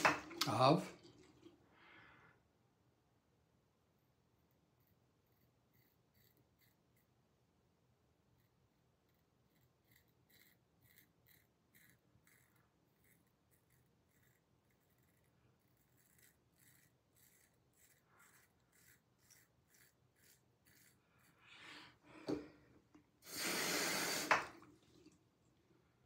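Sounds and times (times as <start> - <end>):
razor scraping stubble: 4.8 - 7.1, 8.4 - 21.4.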